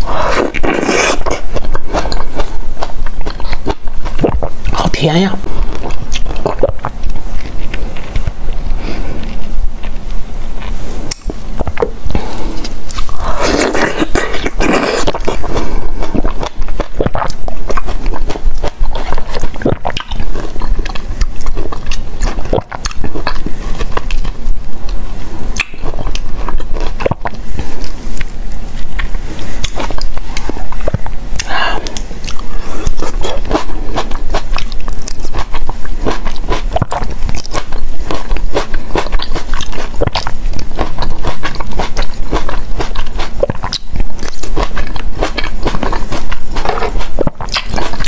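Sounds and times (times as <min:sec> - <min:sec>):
person biting and chewing: 0:00.0 - 0:04.8, 0:05.4 - 0:48.0
wet mouth clicks and smacks: 0:25.6 - 0:27.4.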